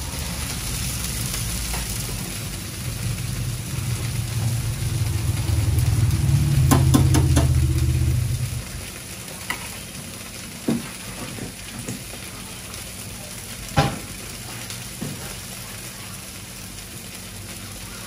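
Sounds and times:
vehicle engine running: 0.0 - 9.0
steady hiss: 0.0 - 11.2
scattered knocks: 6.7 - 7.6.

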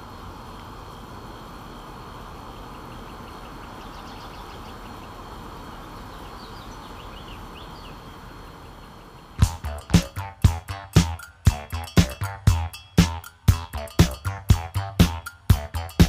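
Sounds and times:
distant traffic rumble: 0.0 - 16.0
faint bird chirps: 2.7 - 5.3, 6.0 - 9.0
music with heavy beat: 9.4 - 16.0.

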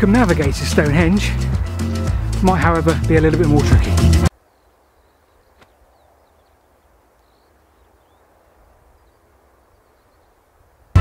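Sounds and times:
faint bird chirps: 4.4 - 10.9.

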